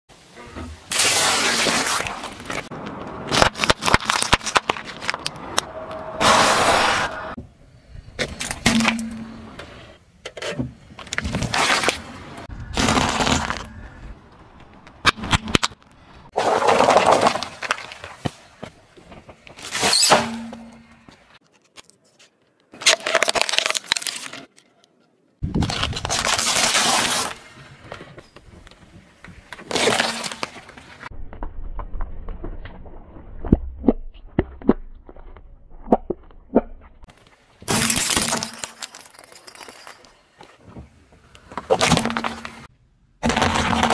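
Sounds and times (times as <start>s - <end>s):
tyre crushing brittle food: 3.3s - 5.3s, 21.4s - 24.6s.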